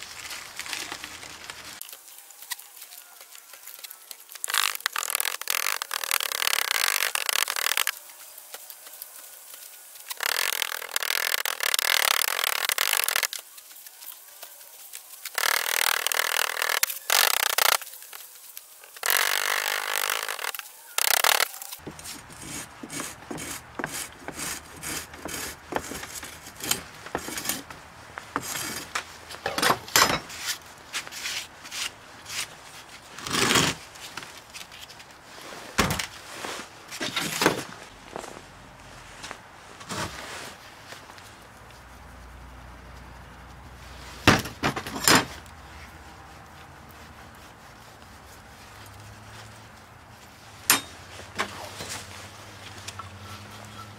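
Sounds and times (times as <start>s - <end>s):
gritty sand rushing: 3.0s - 27.6s
steel bar scraping sand: 15.3s - 17.8s, 18.9s - 27.7s.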